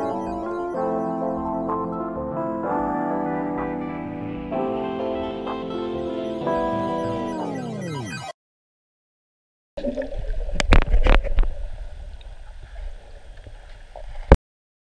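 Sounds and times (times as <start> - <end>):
muffled underwater water sloshing: 9.8 - 14.4.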